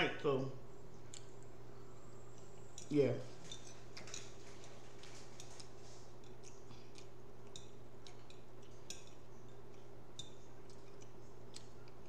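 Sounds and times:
fork clicking and scraping on plate: 2.4s - 12.0s.

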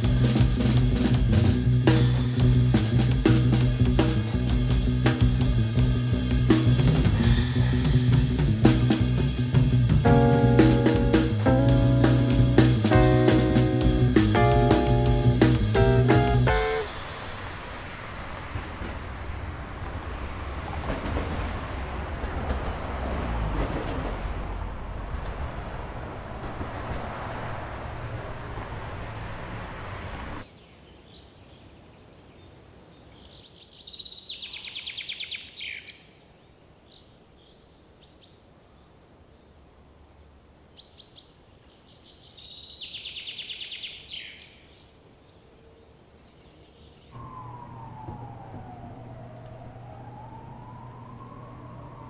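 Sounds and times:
low city hum: 0.0s - 30.5s, 45.7s - 52.0s
city noise: 0.0s - 30.6s, 38.9s - 52.0s
emergency vehicle siren wailing: 47.2s - 52.0s.

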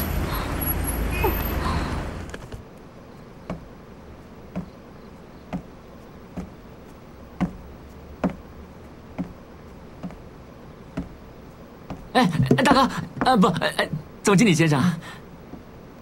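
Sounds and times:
low room hum: 0.0s - 16.0s
footsteps on hard floor: 6.4s - 6.6s, 7.4s - 8.5s, 10.0s - 10.2s, 11.0s - 11.2s, 11.8s - 14.1s.

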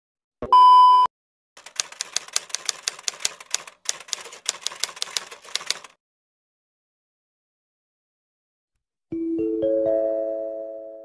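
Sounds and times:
typewriter keystroke clacks: 1.6s - 6.0s.

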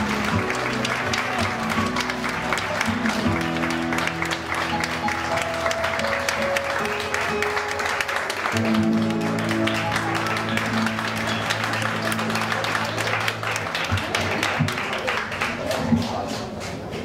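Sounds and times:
acoustic guitar and keyboard chords: 0.0s - 12.3s
audience applauding: 0.0s - 17.0s.

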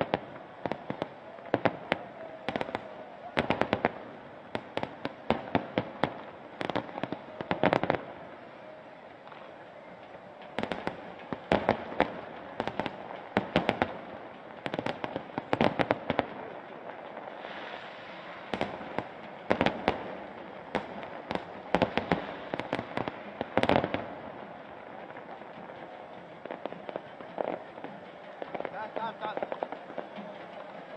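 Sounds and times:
fireworks bangs and cracks: 0.0s - 30.9s
steady background hiss: 0.0s - 30.9s.

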